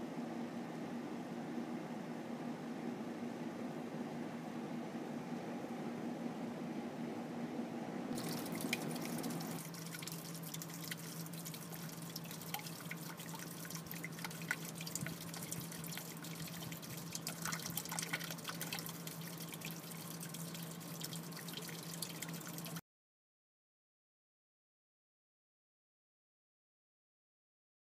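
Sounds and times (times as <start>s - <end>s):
low pump hum: 0.0s - 22.8s
water splashing into tank: 8.2s - 22.8s.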